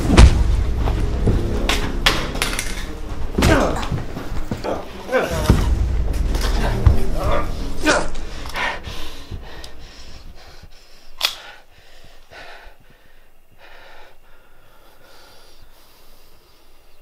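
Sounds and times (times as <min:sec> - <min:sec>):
person panting heavily: 0:06.7 - 0:17.0.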